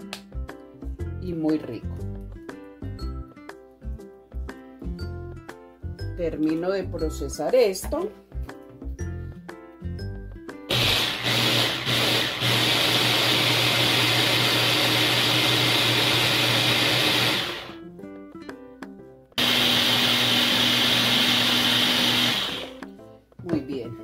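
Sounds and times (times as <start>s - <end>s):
electric food chopper running: 10.7s - 17.8s, 19.4s - 22.8s.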